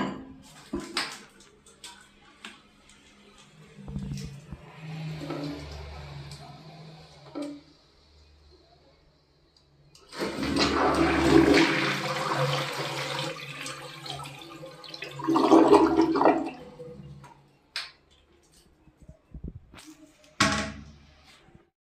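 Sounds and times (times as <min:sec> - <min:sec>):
toilet flushing: 0:00.0 - 0:08.8, 0:09.9 - 0:17.6.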